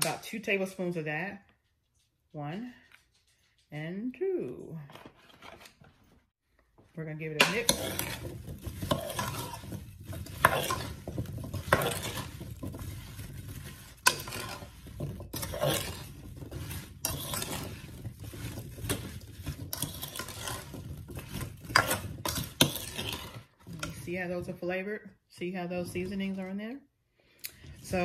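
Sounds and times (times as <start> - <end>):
vegetables being stirred: 6.7 - 28.0
utensil scraping a pot: 7.0 - 24.5, 27.5 - 28.0.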